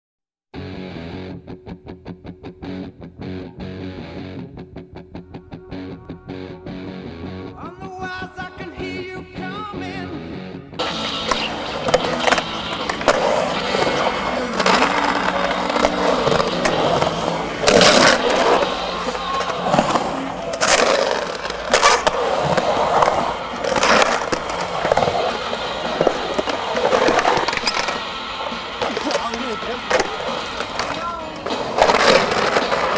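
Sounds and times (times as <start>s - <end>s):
skateboard scraping: 10.8s - 32.9s
skateboard wheels rolling on concrete: 10.8s - 32.9s.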